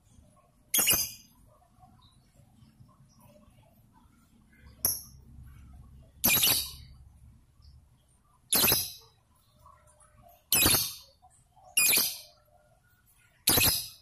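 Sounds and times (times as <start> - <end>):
lovebird shrill calls: 6.2 - 6.8, 10.5 - 11.0, 13.5 - 13.9.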